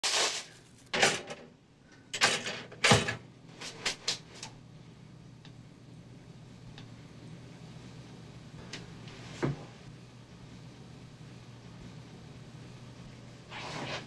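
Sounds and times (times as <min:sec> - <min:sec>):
metal toaster clicking and clunking: 0:00.9 - 0:01.5, 0:02.2 - 0:03.2.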